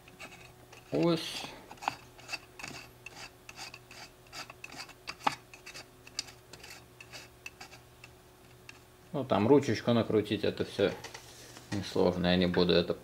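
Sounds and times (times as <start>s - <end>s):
small metal parts scraping and clicking: 1.7s - 7.8s.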